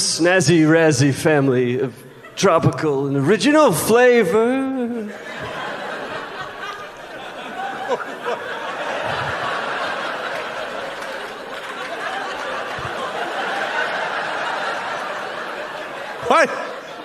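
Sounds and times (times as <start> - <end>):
audience laughing: 4.6 - 17.0.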